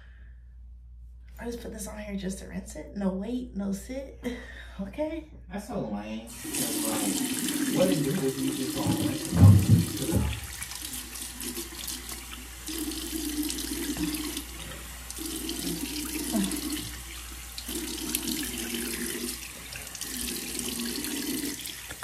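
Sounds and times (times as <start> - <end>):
water splashing on face: 6.3 - 22.0
tap running into sink: 6.5 - 12.4, 13.6 - 15.8
low thump: 8.8 - 10.5.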